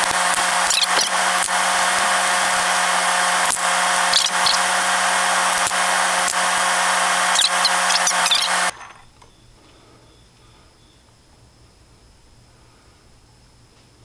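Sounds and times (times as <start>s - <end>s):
power tool whirring with low hum: 0.0s - 11.0s.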